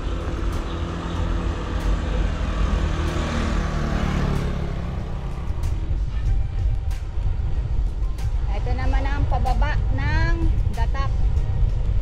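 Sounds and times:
motor vehicle passing close: 0.0 - 6.3
road and wind rumble: 0.0 - 12.0.

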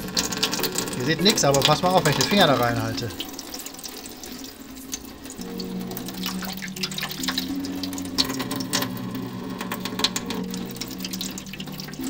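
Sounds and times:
water jet splashing into tub: 0.0 - 9.0
soft background music: 0.0 - 12.0.

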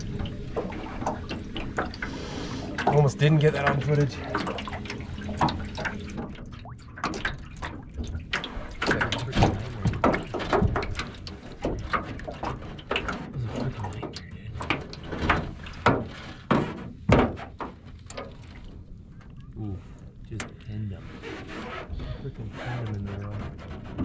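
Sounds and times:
knocks and rattles in boat: 0.0 - 24.0
water splashing: 0.0 - 24.0.

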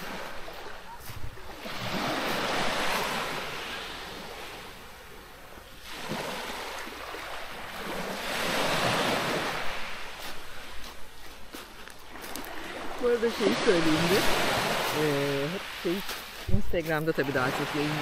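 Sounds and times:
waves washing up pebble beach: 1.5 - 4.7, 5.8 - 11.0, 12.1 - 18.0.

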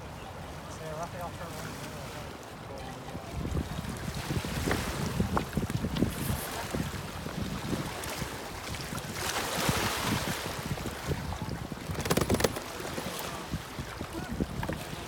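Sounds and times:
wind buffeting microphone: 3.1 - 15.0
water lapping against rocks: 3.3 - 15.0
sharp clicks: 11.9 - 12.6.

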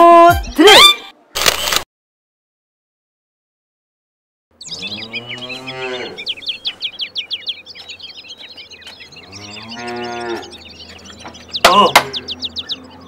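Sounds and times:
small birds chirping: 4.5 - 13.0
cow mooing: 4.7 - 6.3, 9.2 - 10.6.

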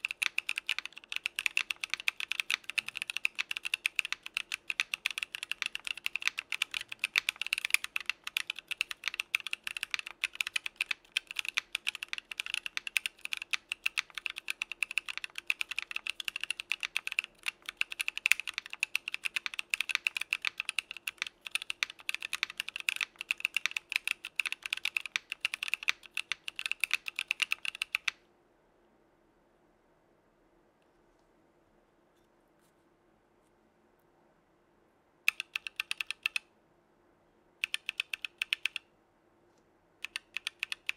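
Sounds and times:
fast typing on mechanical keyboard: 0.0 - 28.2, 35.3 - 36.5, 37.6 - 38.9, 40.0 - 40.9.

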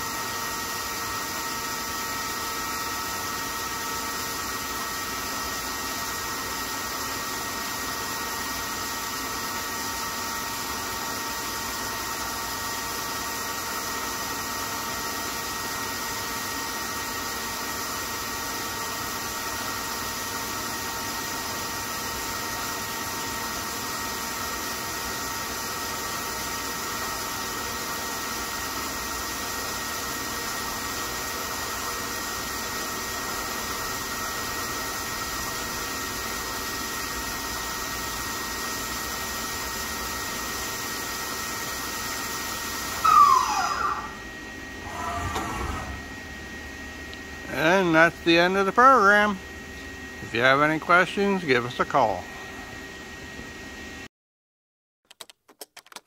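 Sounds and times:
lathe machine hum and hiss: 0.0 - 54.0
high whining tones: 42.9 - 46.6.

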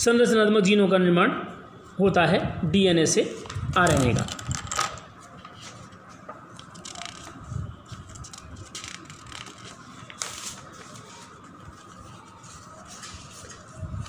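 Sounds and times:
paper rustling and crinkling: 3.4 - 14.0.

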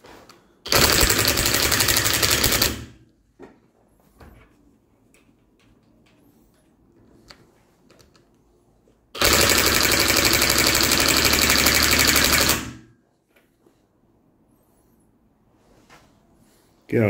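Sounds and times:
impact wrench hammering: 0.7 - 2.9, 9.2 - 12.8.

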